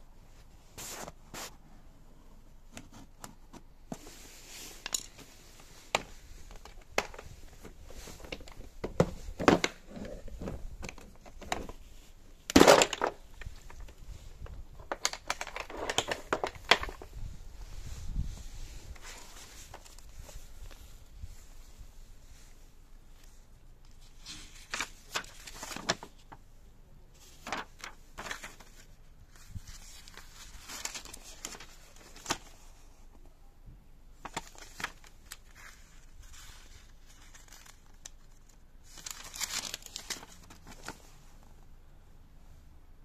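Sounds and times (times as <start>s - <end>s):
paper rustling: 2.7s - 21.0s, 23.1s - 26.4s, 27.2s - 32.9s, 34.2s - 41.2s
plastic case clattering open: 12.5s - 13.2s.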